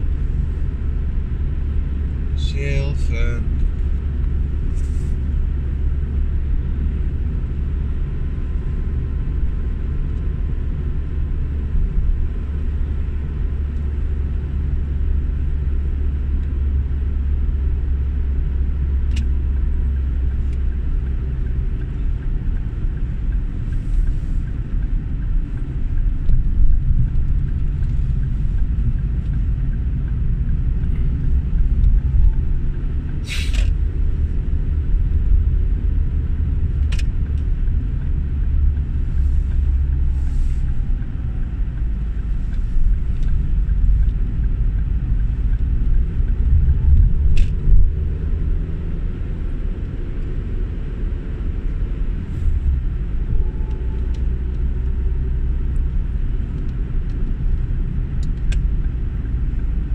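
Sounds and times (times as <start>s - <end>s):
car road and engine rumble: 0.0s - 59.9s
short hiss: 33.2s - 33.7s.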